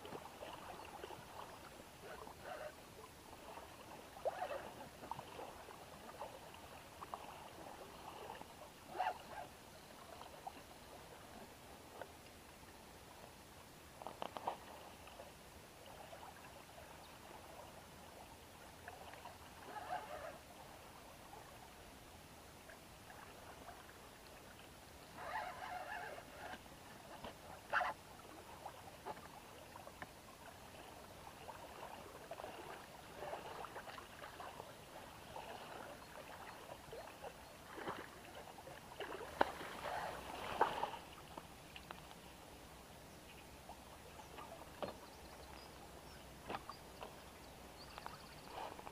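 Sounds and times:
water splashing against boat: 0.0 - 12.6, 22.7 - 42.6, 43.6 - 48.9.

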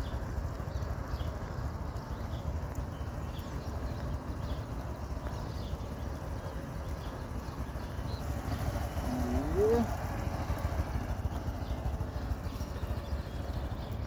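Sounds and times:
small motorcycle engine: 0.0 - 14.0.

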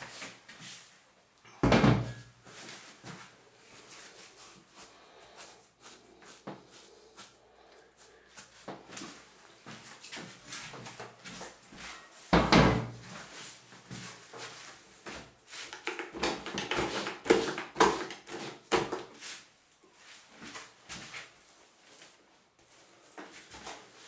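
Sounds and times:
knocks and thumps: 1.6 - 2.2.

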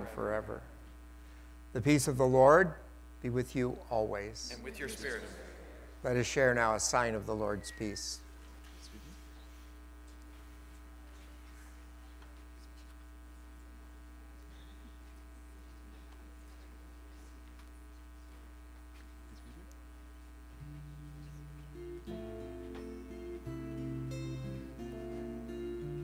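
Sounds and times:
mains hum: 0.0 - 26.0
music with held notes: 20.6 - 26.0.

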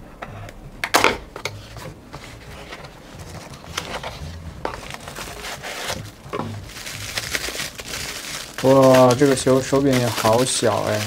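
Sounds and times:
cardboard scrape: 1.4 - 8.8.

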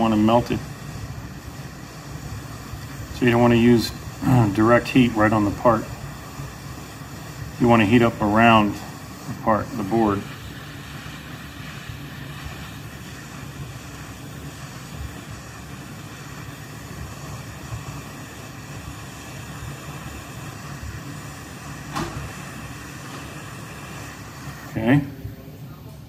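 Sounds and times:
hot air station blowing: 0.0 - 26.0
sharp click: 21.9 - 22.2.

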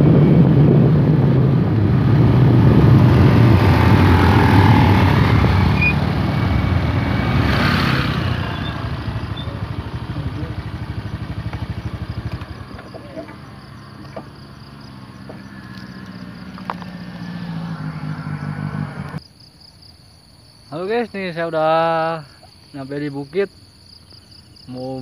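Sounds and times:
wind noise: 0.0 - 9.5
motorcycles running: 0.0 - 19.2.

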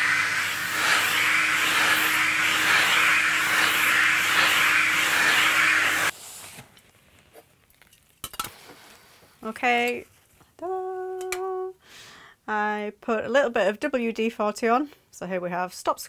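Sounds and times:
workshop vacuum sucking sawdust: 0.0 - 6.6.

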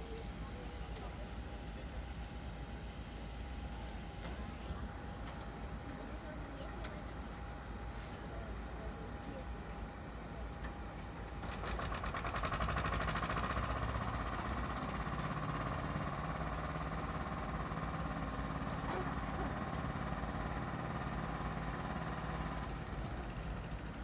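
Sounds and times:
engine idling with knocking pulse: 0.0 - 24.0.

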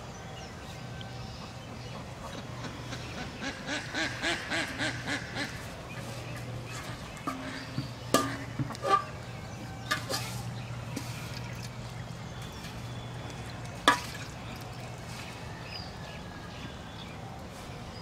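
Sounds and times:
metal pot and plate clinking: 6.7 - 9.2, 9.8 - 10.4.

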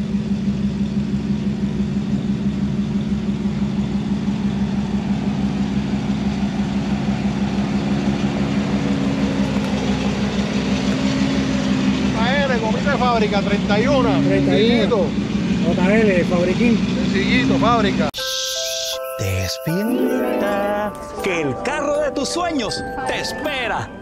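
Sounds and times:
car engine idling: 0.0 - 18.1.

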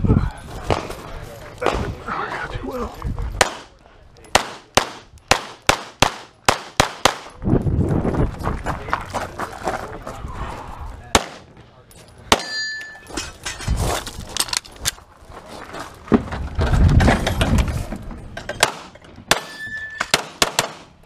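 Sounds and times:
scuffing and rumbling of movement: 7.3 - 12.2, 13.0 - 18.4.

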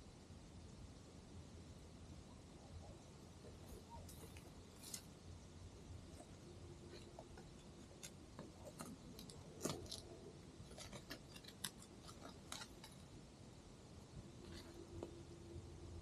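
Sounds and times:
dry twigs crackling and snapping: 6.9 - 13.2.

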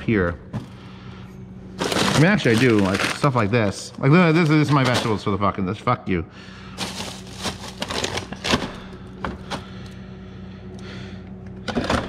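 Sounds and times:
steady low hum: 0.0 - 12.0
plastic bags crinkling: 1.8 - 5.4, 6.7 - 9.0.

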